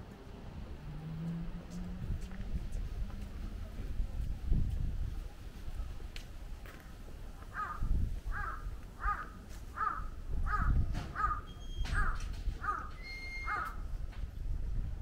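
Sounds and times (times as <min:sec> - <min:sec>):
bird calling: 0:08.4 - 0:13.8.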